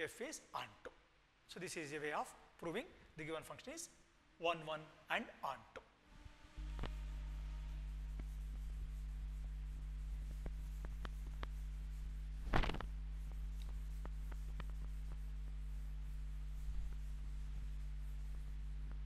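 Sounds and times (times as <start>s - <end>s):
steady low hum: 5.9s - 19.0s
duster wiping blackboard: 6.6s - 19.0s.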